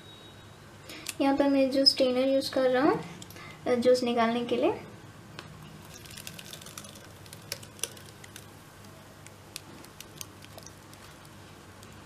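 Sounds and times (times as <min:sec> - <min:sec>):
wet pulp squishing: 0:05.8 - 0:11.4
small clicks and ticks: 0:05.9 - 0:08.5, 0:09.2 - 0:12.0.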